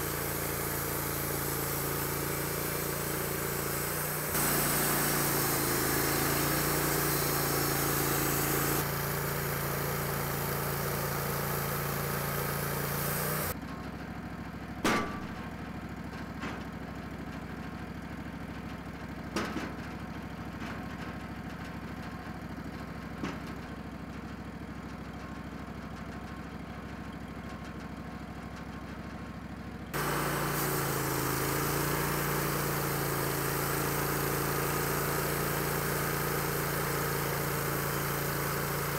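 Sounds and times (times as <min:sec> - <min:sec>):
band sawmill sawing: 0:00.0 - 0:13.6, 0:30.0 - 0:38.9
engine idling: 0:00.0 - 0:19.4, 0:21.2 - 0:38.9.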